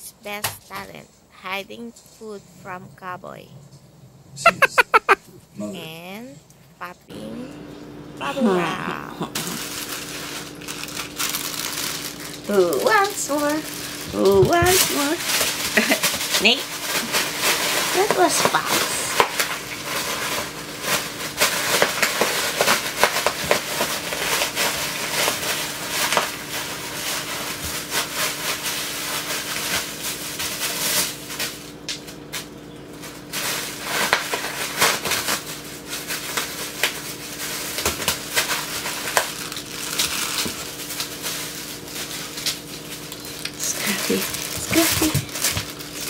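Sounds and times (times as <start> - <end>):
bubble wrap crinkling and popping: 9.2 - 46.0.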